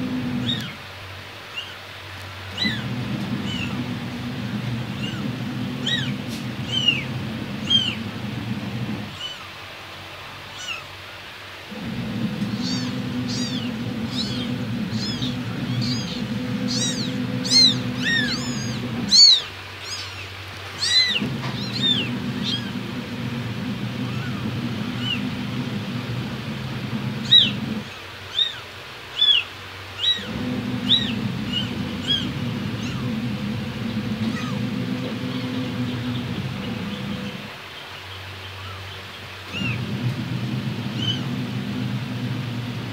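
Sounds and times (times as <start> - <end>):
kittens mewing: 0.4 - 0.8, 2.5 - 8.0, 10.5 - 10.9, 11.8 - 23.0, 23.8 - 26.0, 27.2 - 35.0, 40.9 - 41.3
low hum: 2.5 - 9.3, 11.7 - 19.4, 21.0 - 27.9, 30.2 - 37.6, 39.6 - 42.9.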